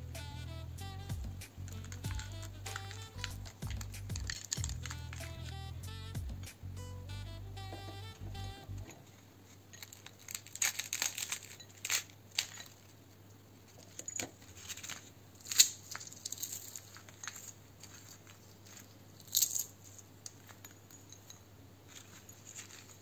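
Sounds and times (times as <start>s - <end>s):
fried pastry cracking: 1.4s - 5.7s, 9.6s - 13.0s, 14.5s - 20.4s.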